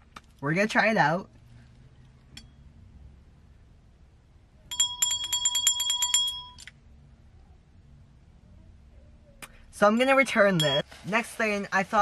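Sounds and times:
small bell rung rapidly: 0:04.7 - 0:06.6.

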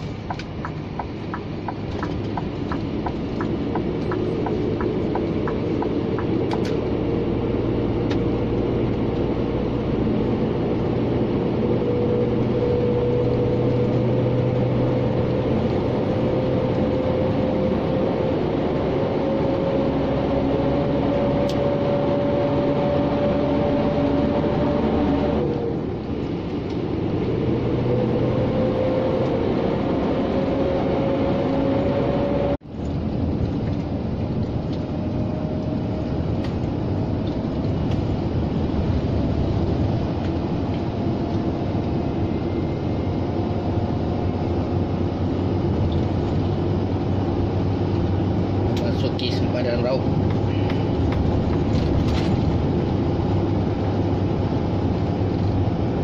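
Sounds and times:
regular ticking: 0:00.0 - 0:06.7
rising engine whine: 0:00.0 - 0:56.0
truck engine and tyre noise: 0:00.0 - 0:56.0.

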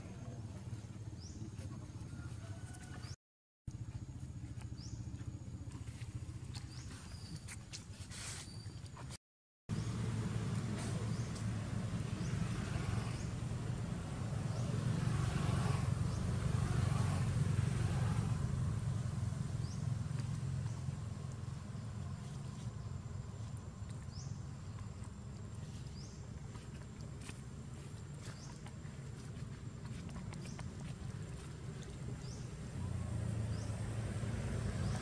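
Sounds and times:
passing vehicle engine hum: 0:09.7 - 0:35.0.

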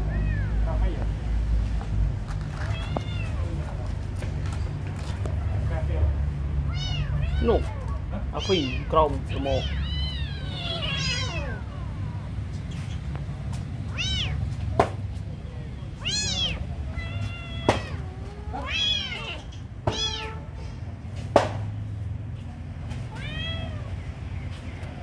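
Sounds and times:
kittens mewing: 0:00.0 - 0:00.8, 0:02.4 - 0:03.8, 0:05.1 - 0:15.0, 0:15.8 - 0:20.8, 0:23.0 - 0:24.0.

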